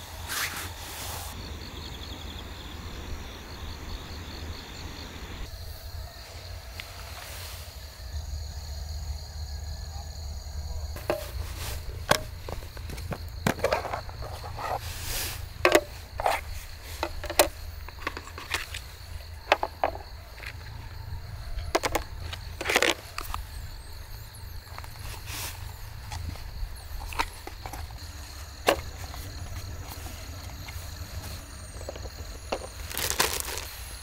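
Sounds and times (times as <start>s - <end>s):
insects chirring: 0.0s - 34.0s
metal tins clacking and clinking: 11.0s - 14.8s, 15.6s - 18.9s.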